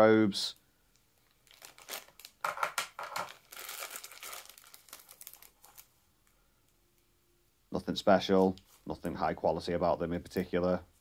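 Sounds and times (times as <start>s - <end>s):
plastic bag crinkling: 1.2s - 5.9s.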